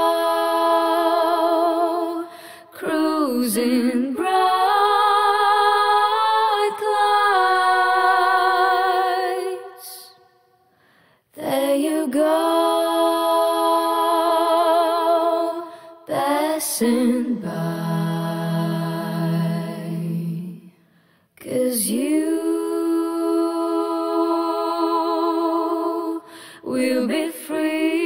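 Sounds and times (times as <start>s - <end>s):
person singing with vibrato: 0.0s - 10.4s, 21.4s - 28.0s.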